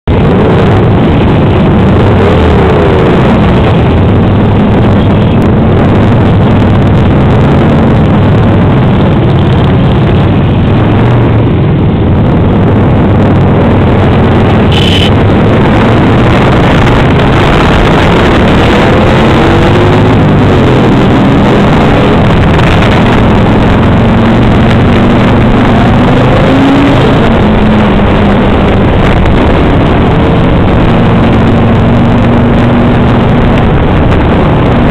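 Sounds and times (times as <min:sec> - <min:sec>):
motorcycle engine running: 0:00.0 - 0:34.9
wind noise on microphone: 0:00.0 - 0:34.9
short high tone: 0:14.7 - 0:15.2.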